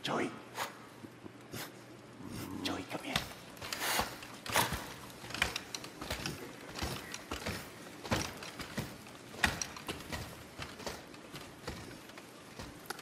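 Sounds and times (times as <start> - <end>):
frame creaking and rustling: 2.7 - 13.0.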